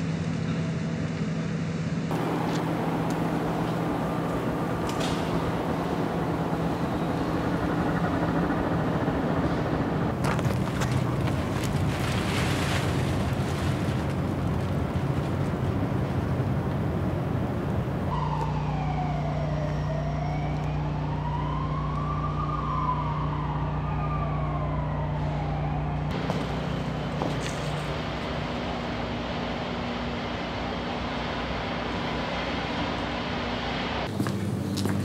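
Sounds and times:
low drone: 0.0 - 11.3
urban background hum: 0.0 - 35.0
distant wailing siren: 2.1 - 34.7.

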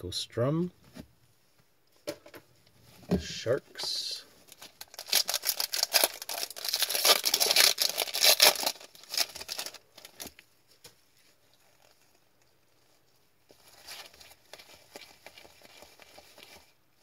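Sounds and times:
foil wrapper crinkling and tearing: 4.5 - 10.4.

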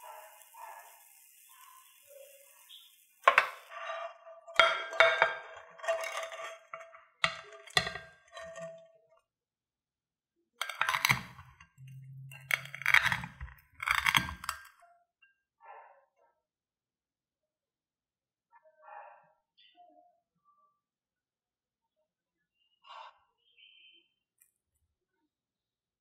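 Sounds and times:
pan and spatula scraping plate: 0.0 - 9.0, 10.6 - 14.7
knife crunching crispy noodles: 10.6 - 11.5, 12.5 - 14.7.

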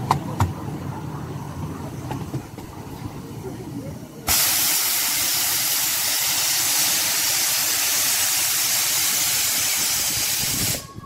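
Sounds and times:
steam locomotive hissing steam: 4.2 - 11.0.

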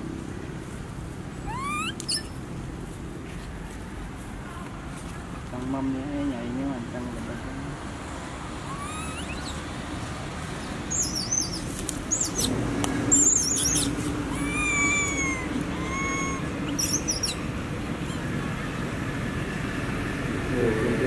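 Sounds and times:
quick squiggly animal chirps: 1.5 - 2.4, 8.7 - 9.6, 13.2 - 17.4
drawn-out arched whistles: 8.7 - 9.6.

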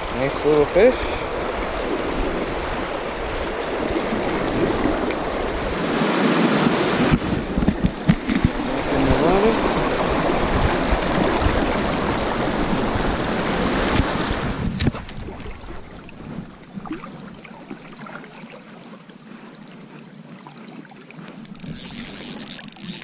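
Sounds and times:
wind buffeting microphone: 1.2 - 17.0.

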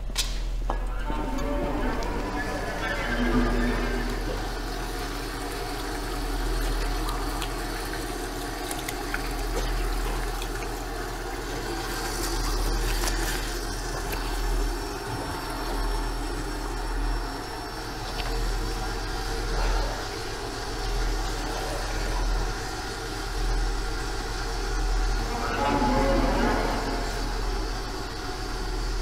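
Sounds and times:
tap water running into sink: 4.0 - 14.4.

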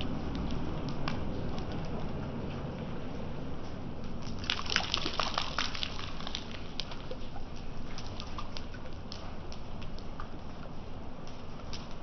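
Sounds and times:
rain drops splashing into puddle: 0.0 - 2.0, 4.0 - 12.0
low steady rumble: 0.0 - 12.0.

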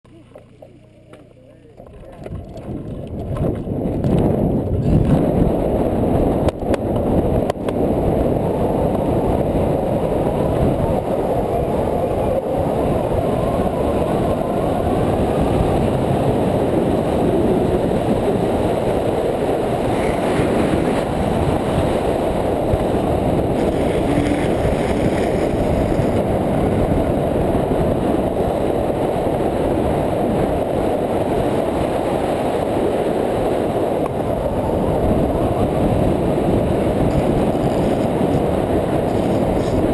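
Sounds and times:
wind on microphone: 1.7 - 39.9
skateboard wheels rolling on asphalt: 2.2 - 39.9
gloved hand scraping asphalt: 23.6 - 26.3.

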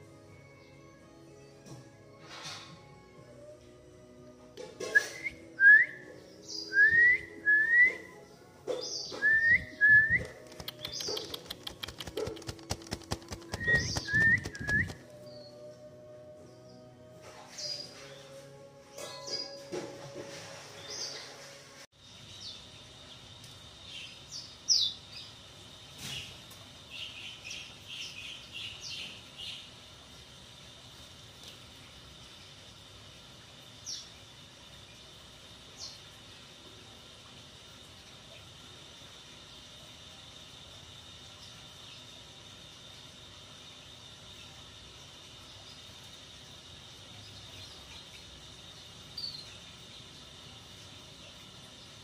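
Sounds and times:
caged birds chirping: 8.7 - 15.7, 20.6 - 30.0
whistled upward sliding notes: 9.1 - 11.0, 13.5 - 15.8.

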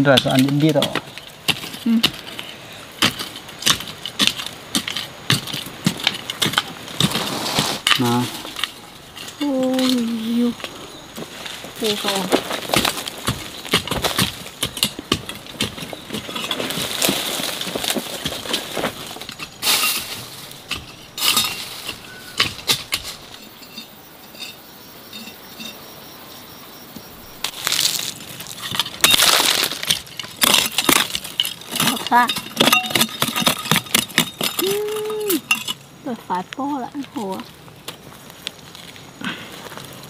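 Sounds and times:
hard objects knocking and clinking: 28.4 - 35.8.

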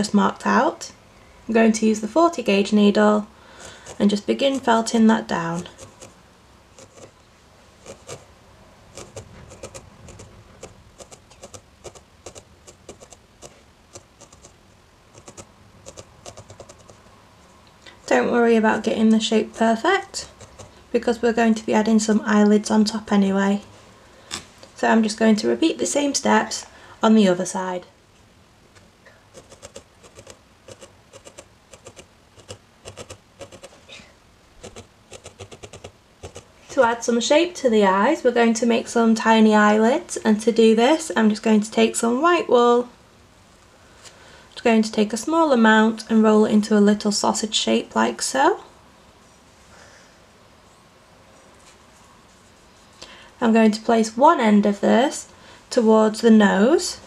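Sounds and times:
felting needle jabbing wool: 3.6 - 7.2, 7.8 - 8.3, 8.9 - 17.0, 18.8 - 20.9, 29.3 - 33.8, 34.6 - 36.5.

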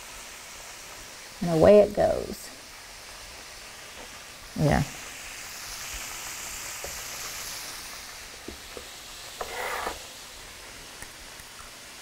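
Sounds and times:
food sizzling in hot oil: 0.0 - 12.0
scraping rustle: 9.4 - 10.0.

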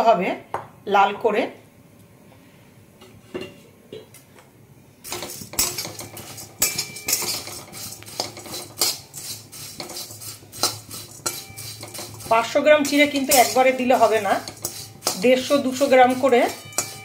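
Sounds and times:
spatula scraping a metal pan: 5.0 - 17.0.

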